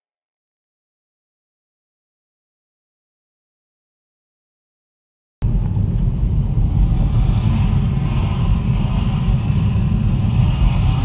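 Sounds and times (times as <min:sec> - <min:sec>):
car engine and road noise: 0:05.4 - 0:11.0.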